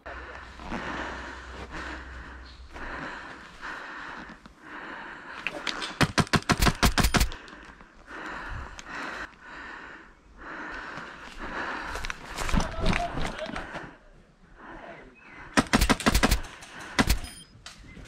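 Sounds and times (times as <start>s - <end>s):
hard breathing: 0.0s - 17.4s
airsoft rifle firing: 15.6s - 17.3s.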